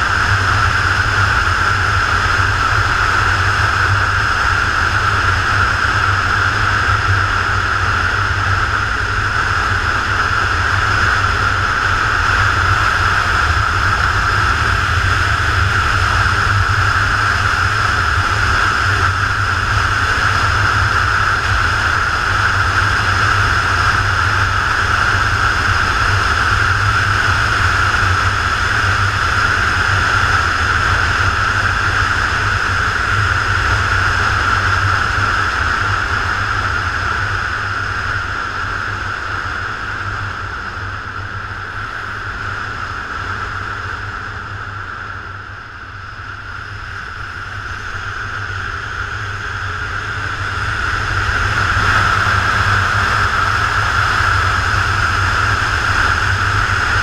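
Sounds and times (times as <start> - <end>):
wind rush: 0.0 - 57.0
motorcycle engine: 44.2 - 57.0.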